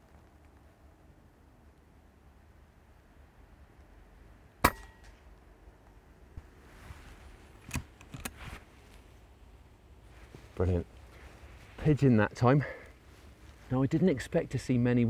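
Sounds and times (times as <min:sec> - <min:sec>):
air rifle shot: 0:04.6 - 0:05.0.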